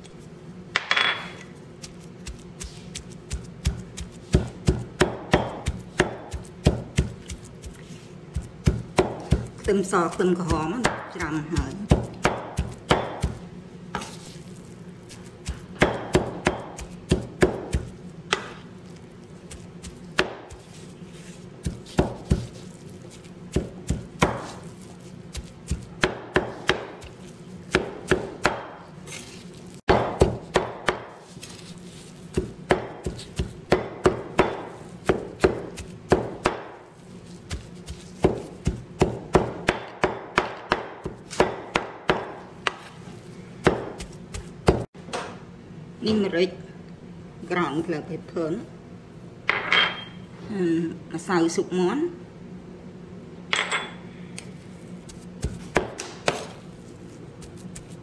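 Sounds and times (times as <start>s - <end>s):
cleaver chopping on wooden board: 3.6s - 7.1s, 8.6s - 9.5s, 11.9s - 13.4s, 15.8s - 18.6s, 20.1s - 20.6s, 21.6s - 22.5s, 23.5s - 24.5s, 25.4s - 27.1s, 27.7s - 28.8s, 29.9s - 31.2s, 32.3s - 36.8s, 38.2s - 42.8s, 55.4s - 56.5s.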